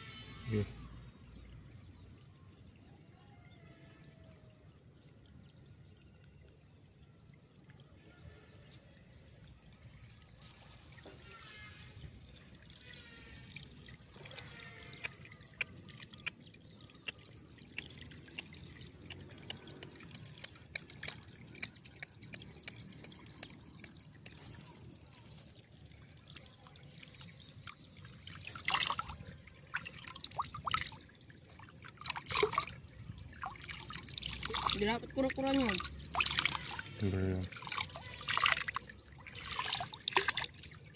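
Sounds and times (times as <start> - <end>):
shallow water trickling and lapping: 0.0 - 40.9
small water drips: 0.7 - 40.9
water splashes: 8.4 - 40.9.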